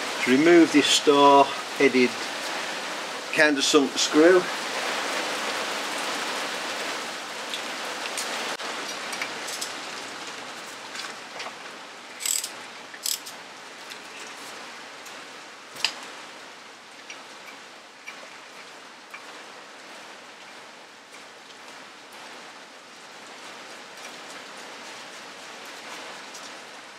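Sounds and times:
socket tool metallic clicks: 12.2s - 13.3s.

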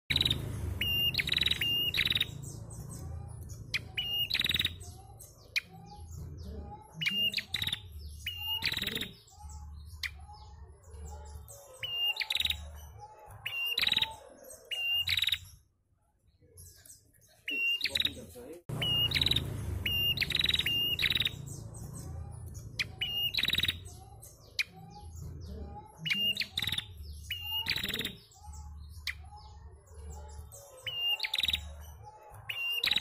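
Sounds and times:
bird chirps and trills: 0.1s - 15.8s, 16.5s - 33.0s
low steady rumble: 18.7s - 23.0s.

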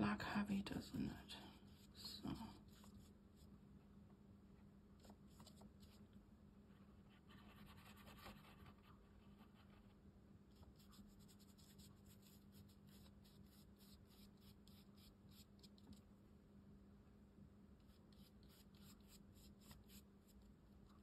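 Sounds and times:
brush scrubbing paint on paper: 1.5s - 3.5s, 5.0s - 6.0s, 7.1s - 9.8s, 10.5s - 16.0s, 17.8s - 21.0s.

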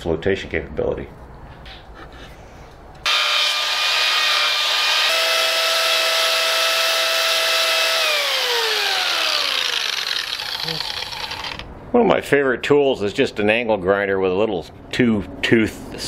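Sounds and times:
angle grinder cutting foam: 3.1s - 11.7s.

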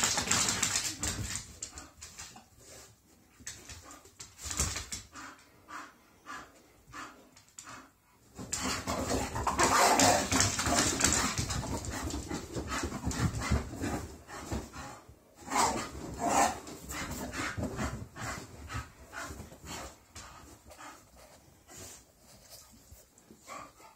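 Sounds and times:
dogs scuffling: 0.0s - 5.1s, 8.3s - 14.8s.

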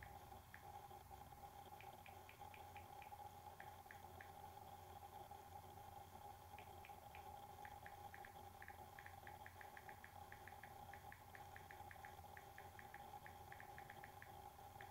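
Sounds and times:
steady low hum: 0.0s - 14.9s
fingers tapping on smartphone: 1.7s - 4.4s, 6.6s - 14.9s.

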